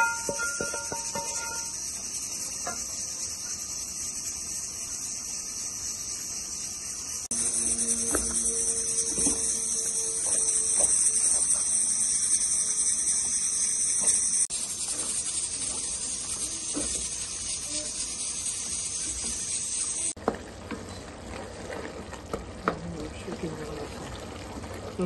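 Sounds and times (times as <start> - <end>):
greens sizzling in a pan: 0.0 - 25.0
wooden spoon scraping a pan: 18.2 - 25.0.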